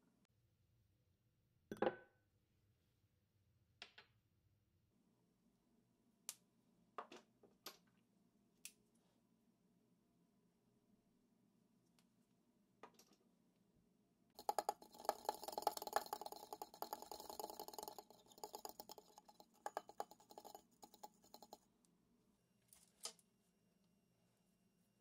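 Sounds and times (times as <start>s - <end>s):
fork whisking in glass bowl: 14.4s - 21.6s.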